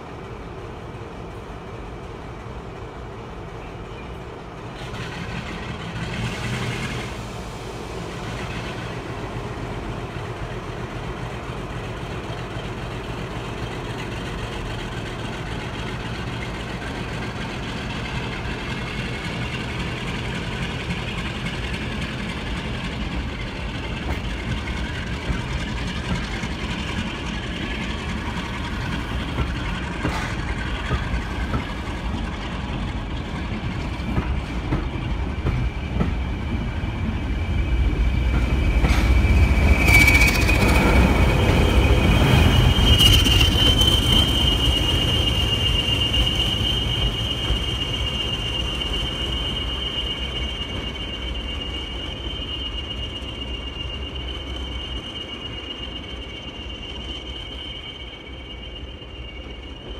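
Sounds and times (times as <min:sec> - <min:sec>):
diesel locomotive: 0:00.0 - 0:59.9
train coaches rumbling on rails: 0:00.0 - 0:59.9
high-pitched wheel squeal: 0:15.0 - 0:59.9.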